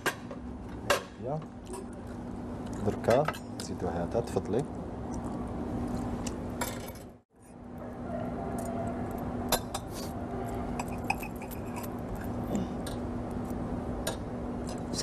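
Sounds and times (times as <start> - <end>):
sharp cutlery clinks: 10.8 - 11.9
knife and fork scraping a plate: 10.8 - 12.3.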